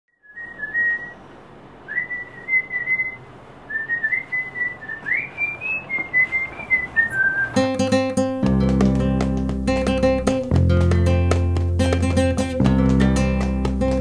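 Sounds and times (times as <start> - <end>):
person whistling a tune: 0.3 - 1.2, 1.9 - 7.8.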